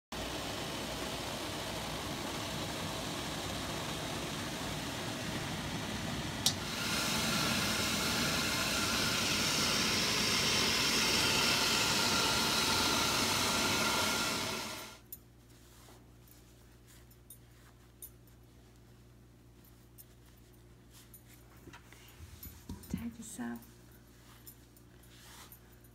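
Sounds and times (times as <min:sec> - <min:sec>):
steam hissing from boiling pot: 0:00.2 - 0:15.0
cloth rustling: 0:23.7 - 0:25.9.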